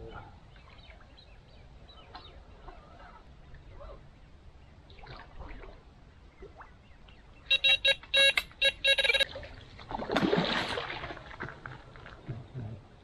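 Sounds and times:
bite alarm beeping: 7.5 - 9.2.

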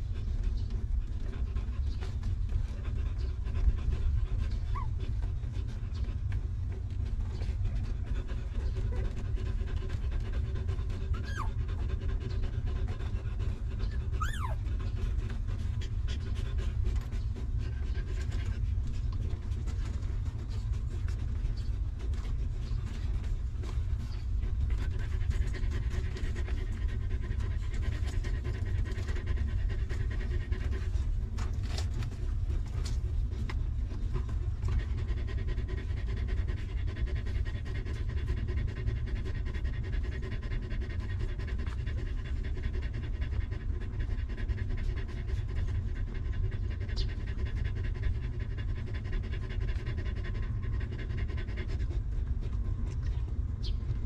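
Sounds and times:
dog panting: 0.0 - 54.0
low rumble: 0.0 - 54.0.

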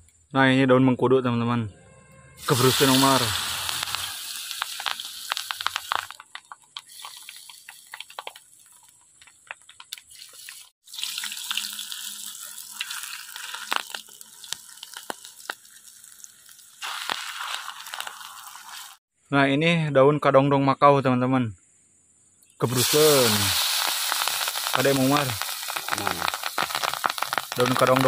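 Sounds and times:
battered leaf deep-frying in oil: 2.4 - 19.0, 22.6 - 28.0.

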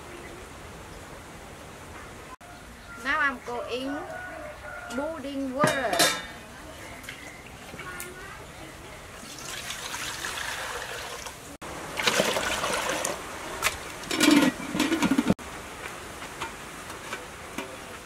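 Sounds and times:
metal lid clattering: 5.6 - 6.4, 14.1 - 15.4
water pouring into a pot: 9.2 - 13.2
water boiling in a pot: 9.2 - 15.3.

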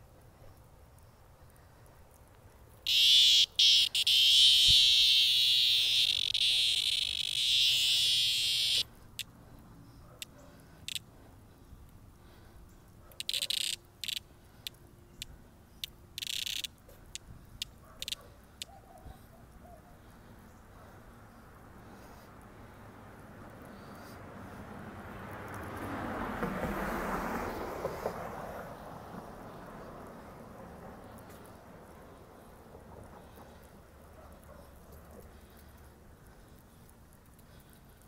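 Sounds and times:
cicada distress buzz: 2.8 - 9.3, 13.2 - 14.3, 15.8 - 17.2.

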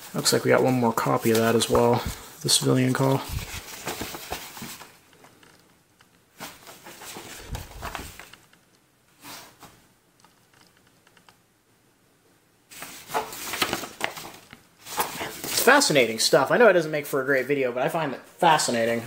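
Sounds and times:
old paper rustling: 0.0 - 5.4, 6.3 - 8.4, 12.7 - 16.2.

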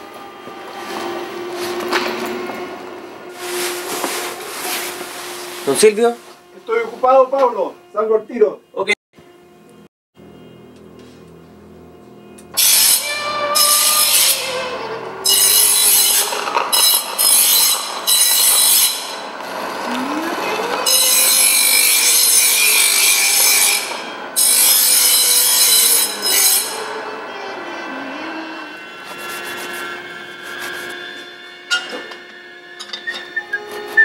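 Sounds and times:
tool scraping in workshop: 0.5 - 7.6, 12.6 - 19.9, 20.7 - 27.1, 28.6 - 34.0.

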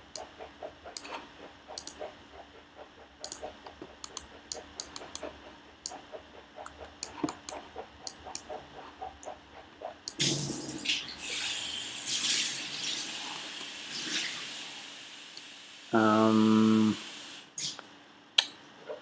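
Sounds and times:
mouse and keyboard clicking: 0.0 - 2.1, 3.2 - 9.4.

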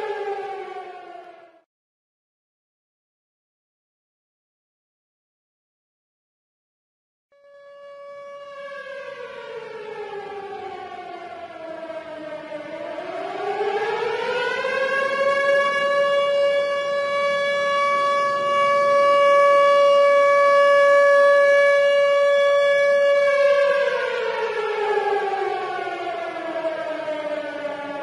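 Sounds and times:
warning siren wailing: 0.0 - 1.6, 7.4 - 28.0.

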